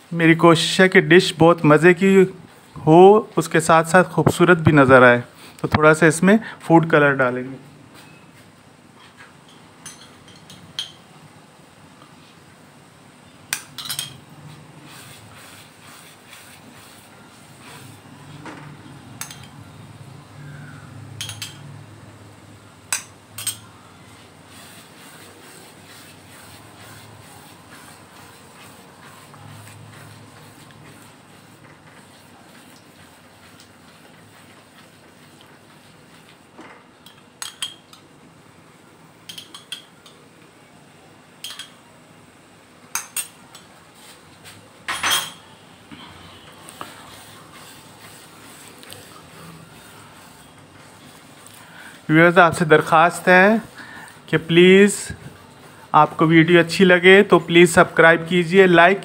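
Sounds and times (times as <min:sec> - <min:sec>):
spoon and bowl clinking on pan: 0:09.5 - 0:11.0, 0:13.6 - 0:14.2, 0:21.2 - 0:21.7, 0:41.4 - 0:41.8.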